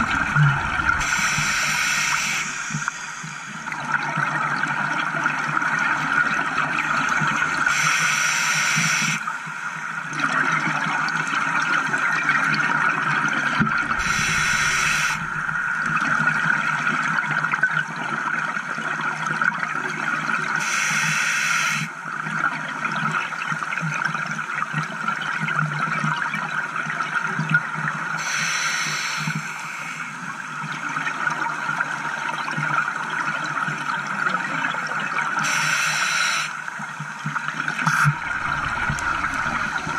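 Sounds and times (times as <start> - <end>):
rushing water and bubbles: 0.0 - 39.9
diver breathing through regulator: 14.0 - 15.6.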